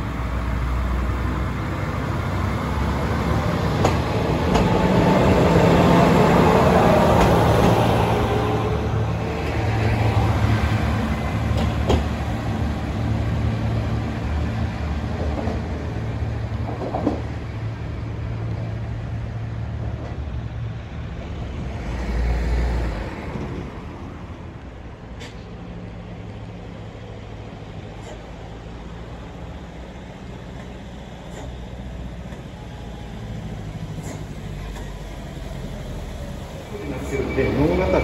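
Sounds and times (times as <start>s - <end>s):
diesel railcar engine idling: 23.8s - 38.0s.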